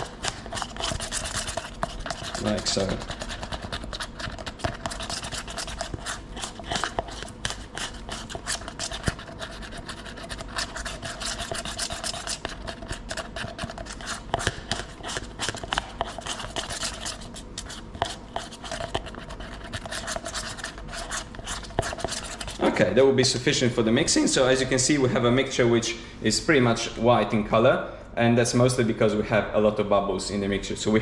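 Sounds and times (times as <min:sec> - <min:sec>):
spatula scraping plastic cup: 0:00.0 - 0:22.7.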